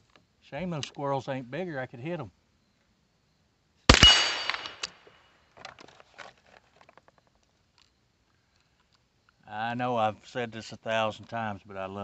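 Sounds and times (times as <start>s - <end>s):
bullet ringing on steel target: 3.9s - 4.9s
rifle shot crack: 3.9s - 5.0s.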